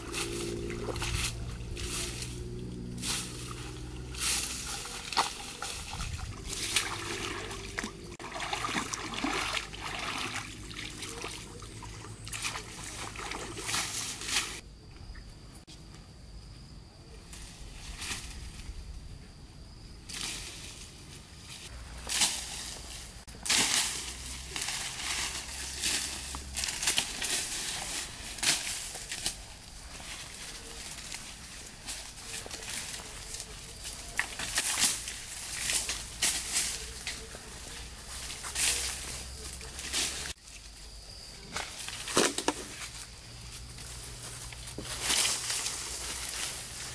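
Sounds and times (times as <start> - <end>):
sticks dragging: 0.0 - 7.5
rustling through scrub: 0.0 - 14.6, 20.1 - 46.9
water sloshing and splashing: 3.4 - 14.6.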